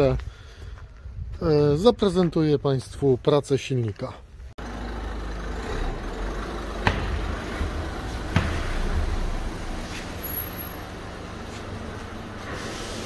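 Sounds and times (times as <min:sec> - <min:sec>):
diesel engine running at low revs: 0:04.6 - 0:13.0
sharp knocks: 0:06.7 - 0:09.6.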